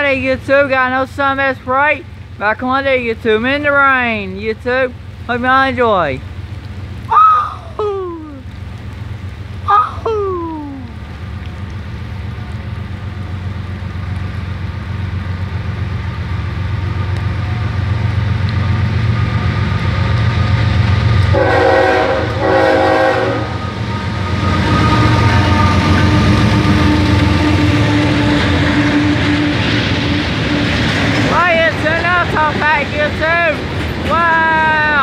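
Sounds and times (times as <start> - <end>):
diesel locomotives rumbling: 0.0 - 35.0
locomotive horn blasts: 21.3 - 30.2.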